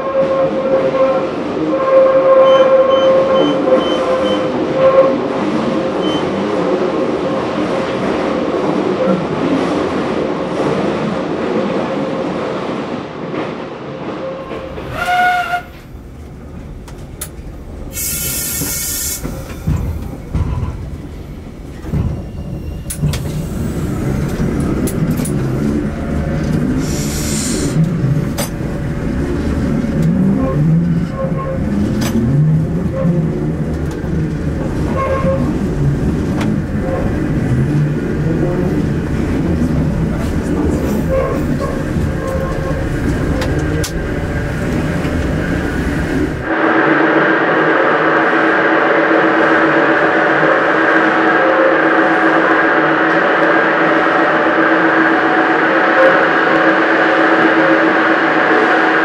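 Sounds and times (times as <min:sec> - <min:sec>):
rail car rumbling on rails: 0:00.0 - 0:59.0
air hiss: 0:17.9 - 0:20.2, 0:26.7 - 0:27.8.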